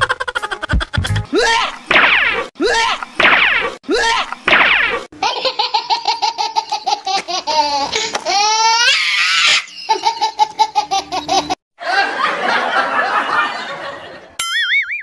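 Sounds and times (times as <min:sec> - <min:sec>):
high-pitched laughing sound effect: 0:00.0 - 0:01.9.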